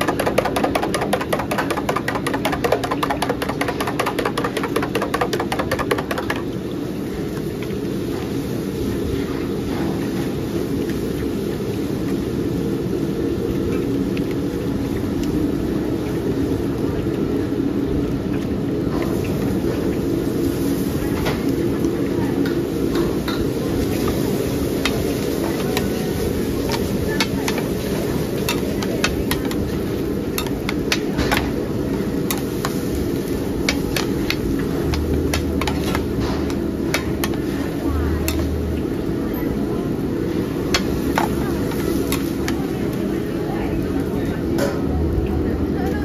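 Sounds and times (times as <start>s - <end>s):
cooking utensils clacking: 0.0s - 6.5s, 24.7s - 38.8s.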